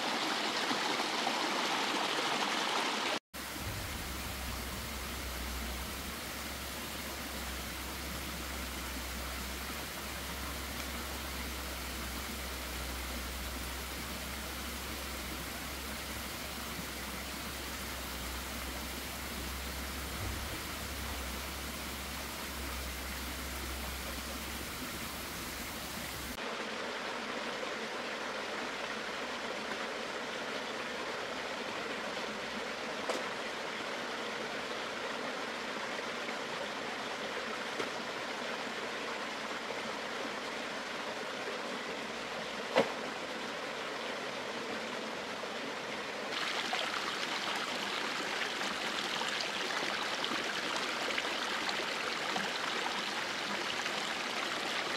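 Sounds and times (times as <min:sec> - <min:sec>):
flowing water rushing: 0:00.0 - 0:54.9
low rumble: 0:03.5 - 0:06.4.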